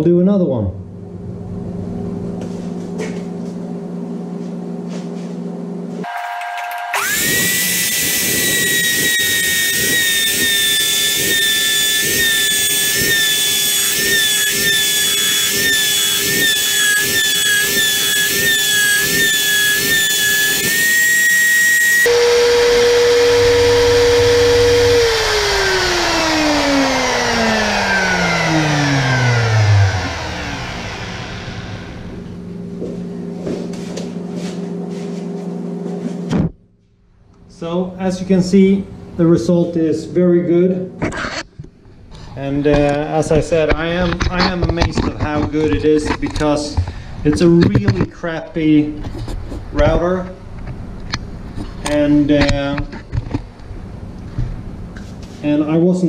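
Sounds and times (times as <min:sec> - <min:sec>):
motor winding down: 0:06.0 - 0:32.4
electric router whining: 0:06.0 - 0:32.9.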